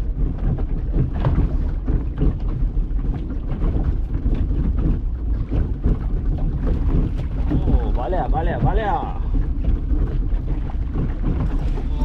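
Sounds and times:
boat engine rumble: 0.0s - 12.0s
knocks and splashes: 0.0s - 12.0s
wind on microphone: 0.0s - 12.0s.

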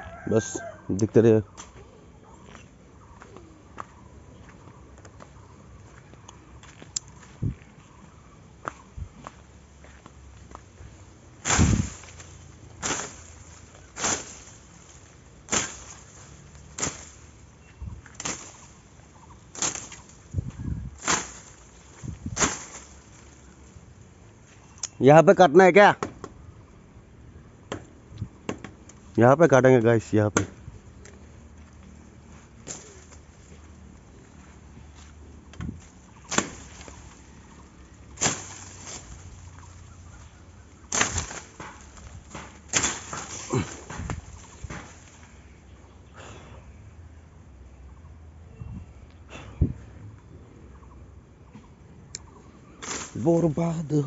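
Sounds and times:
machete chopping: 11.4s - 14.7s, 15.5s - 17.3s, 18.1s - 18.8s, 19.6s - 20.2s, 21.0s - 23.1s, 32.6s - 33.2s, 36.2s - 37.2s, 38.1s - 39.8s, 40.7s - 45.2s, 52.8s - 53.5s.

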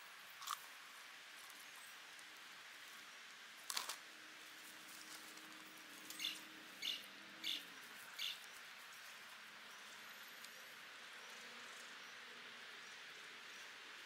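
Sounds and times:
faint outdoor hiss: 0.0s - 14.0s
small bird chirping: 6.1s - 8.6s.

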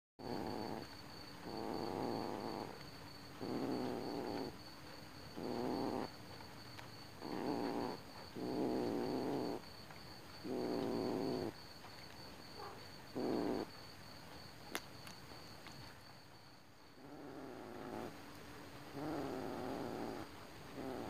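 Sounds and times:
kitten purring: 0.2s - 4.7s, 5.3s - 6.4s, 7.2s - 9.6s, 10.3s - 11.6s, 12.6s - 13.8s, 17.0s - 21.0s.

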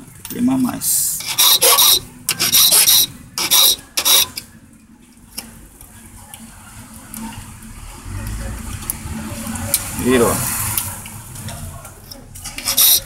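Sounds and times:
file rasping on metal: 1.2s - 4.4s, 12.5s - 13.0s.

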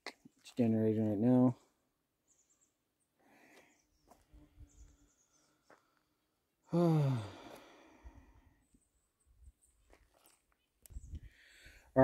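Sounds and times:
person sighing: 6.6s - 8.3s.

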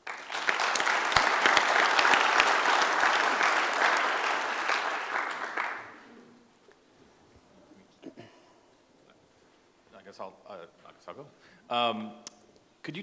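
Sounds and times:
audience clapping: 0.0s - 6.1s.

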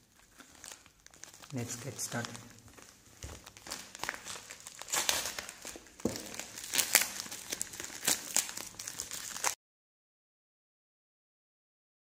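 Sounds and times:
plastic mailer bag crinkling: 0.0s - 9.6s.

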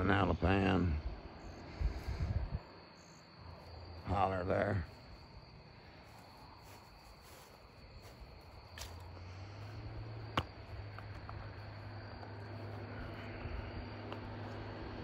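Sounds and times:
crickets trilling: 0.0s - 15.0s
low hum: 8.5s - 15.0s.

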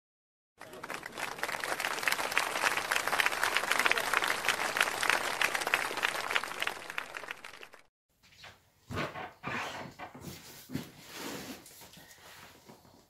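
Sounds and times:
crowd applause: 0.6s - 7.9s.

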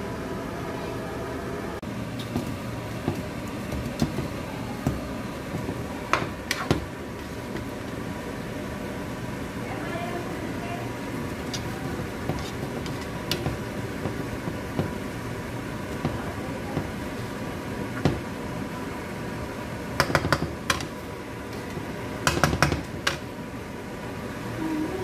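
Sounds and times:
spatula scraping a wok: 11.4s - 13.4s.

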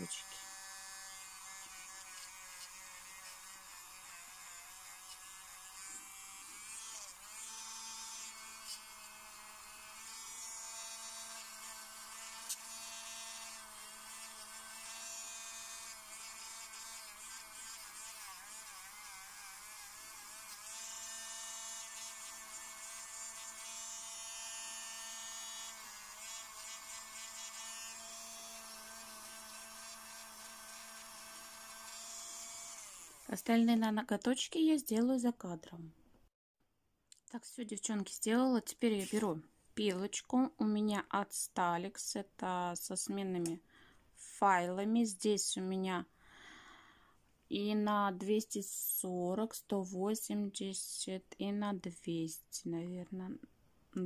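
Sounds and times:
electric nail drill whining: 0.0s - 33.5s.

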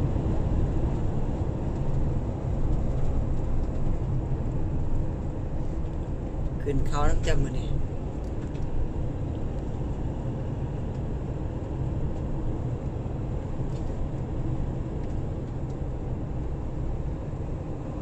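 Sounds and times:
car driving on asphalt: 0.0s - 18.0s.

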